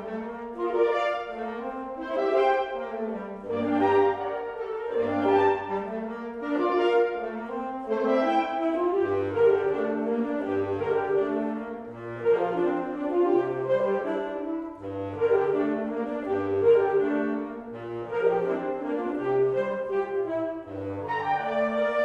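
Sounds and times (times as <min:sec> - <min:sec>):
woodwind ensemble playing chords: 0:00.0 - 0:22.0.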